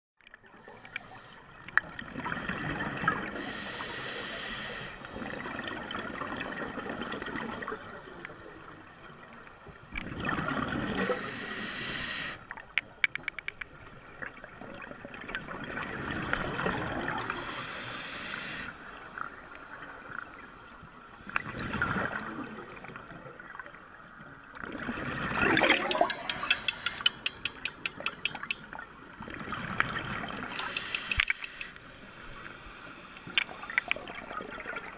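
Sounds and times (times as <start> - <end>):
regulator hissing inhale: 0.7 - 1.5, 3.3 - 5.4, 11.0 - 12.5, 17.2 - 23.1, 26.1 - 27.4, 30.5 - 34.2
bubbles gurgling: 10.0 - 11.2, 14.5 - 17.4, 24.6 - 30.5
fast clicking: 25.7 - 28.6.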